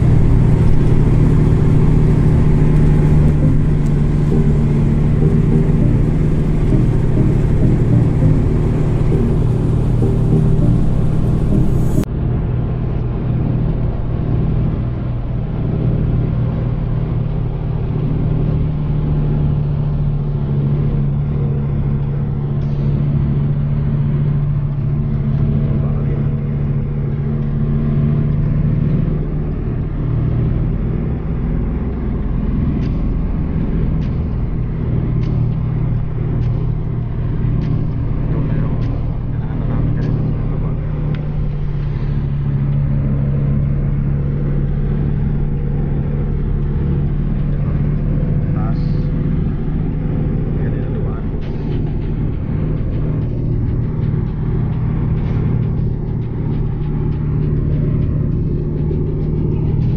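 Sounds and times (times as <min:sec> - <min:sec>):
vehicle engine droning: 0:00.0 - 0:59.9
light repeating tick: 0:31.9 - 0:48.2.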